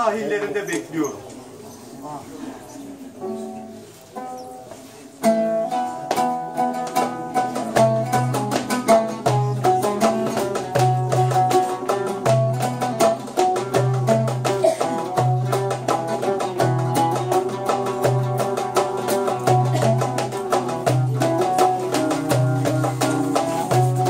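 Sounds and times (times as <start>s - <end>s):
oud plucked melody: 3.2s - 24.0s
goblet drum rhythm: 5.3s - 24.0s.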